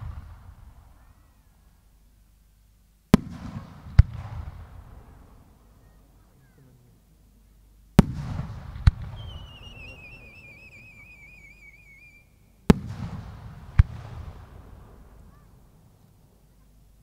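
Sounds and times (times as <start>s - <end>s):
firework booms: 0.0s - 1.1s, 3.1s - 5.6s, 8.0s - 15.8s
sharp crack with rolling echo: 3.1s - 6.2s, 8.0s - 16.2s
falling firework whistle: 8.9s - 12.5s.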